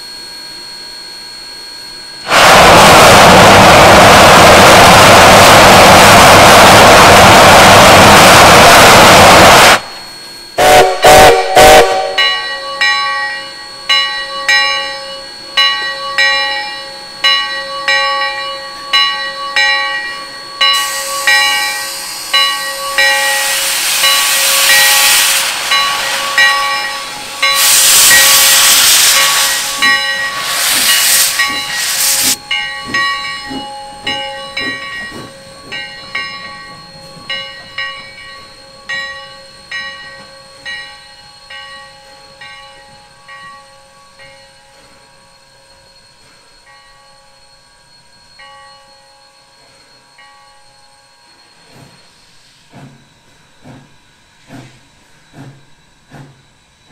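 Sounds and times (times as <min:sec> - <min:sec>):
steam whistle blasts: 0:02.2 - 0:10.0, 0:10.6 - 0:12.5, 0:20.7 - 0:32.7
steam hissing: 0:02.2 - 0:12.2, 0:19.8 - 0:46.7
steam locomotive chuffing: 0:02.2 - 0:56.9
locomotive bell ringing: 0:10.1 - 0:52.4.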